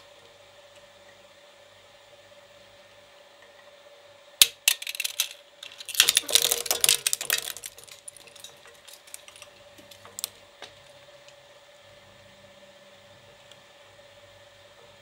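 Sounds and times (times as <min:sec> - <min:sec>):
plastic fragments clicking: 0:04.4 - 0:10.3
shredder blades crunching toy car: 0:04.4 - 0:10.3.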